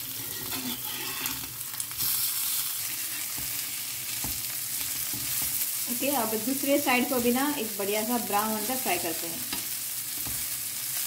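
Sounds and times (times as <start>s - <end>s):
metal spatula scraping a pan: 0.0s - 5.6s
fish sizzling in oil: 0.0s - 11.0s.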